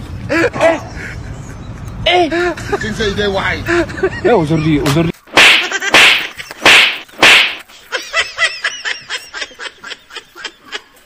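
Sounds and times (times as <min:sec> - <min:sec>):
short swishing bursts: 0:05.3 - 0:07.6.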